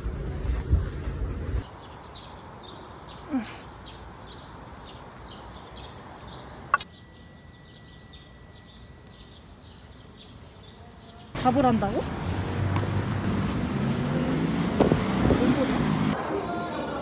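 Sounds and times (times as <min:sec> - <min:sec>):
small birds chirping: 0:01.6 - 0:12.4.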